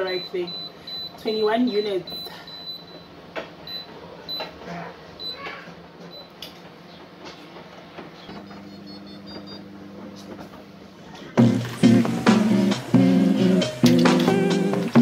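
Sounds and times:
keypad beeps: 0.0 - 3.1, 8.2 - 9.6
low steady hum: 8.2 - 15.0
loud guitar music: 11.4 - 15.0.

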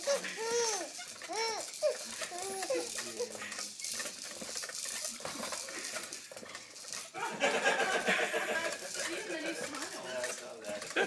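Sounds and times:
plastic toys rattling: 0.0 - 11.0
people laughing: 7.1 - 10.1, 10.7 - 11.0
voices: 7.1 - 11.0.

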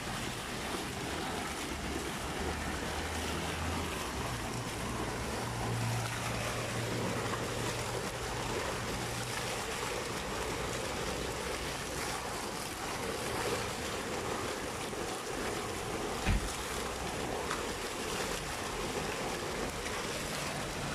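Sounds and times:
fountain water splashing: 0.0 - 20.9
low thump: 16.2 - 16.6.

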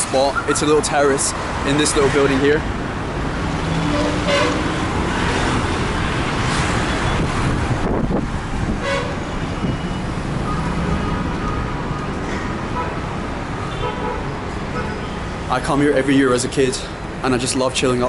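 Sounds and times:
rumble of motorbikes and cars: 0.0 - 18.0
vehicle horn toots: 3.8 - 4.8, 8.8 - 9.7, 13.6 - 15.2.

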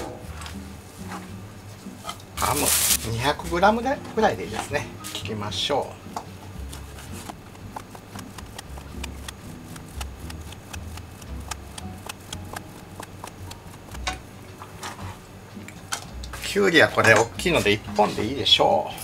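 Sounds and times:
knife chopping on cutting board: 6.6 - 14.2.

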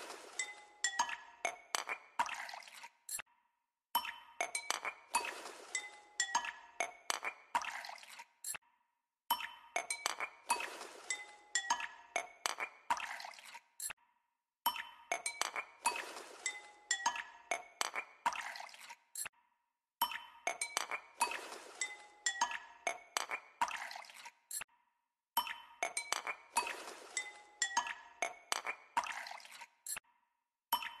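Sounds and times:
chime music with glassy clinks: 9.3 - 10.3, 14.7 - 15.6, 20.0 - 20.9, 25.4 - 26.4, 30.8 - 31.0.

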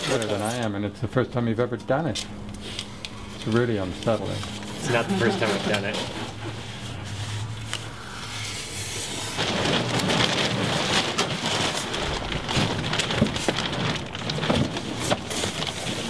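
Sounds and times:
low hum: 0.0 - 14.3
foam blocks rustling and crackling: 8.9 - 16.0.

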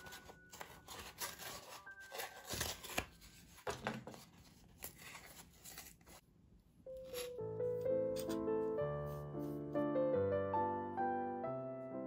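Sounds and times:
egg carton tearing: 0.8 - 3.6.

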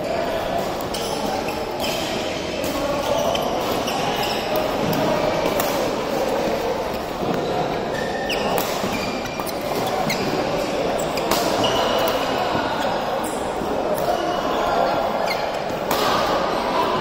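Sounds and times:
shoes squeaking on court floor: 0.0 - 17.0
rackets hitting shuttlecocks: 11.2 - 12.2.

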